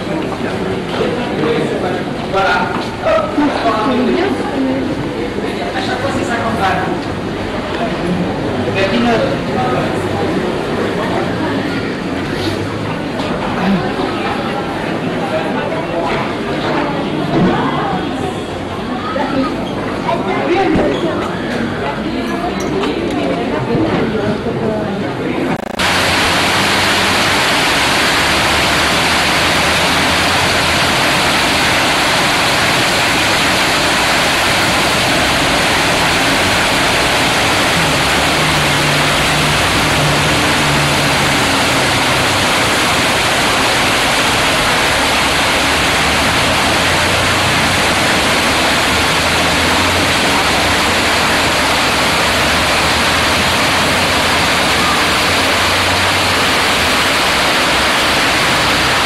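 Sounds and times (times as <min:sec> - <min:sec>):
fountain water splashing: 0:25.6 - 0:59.0.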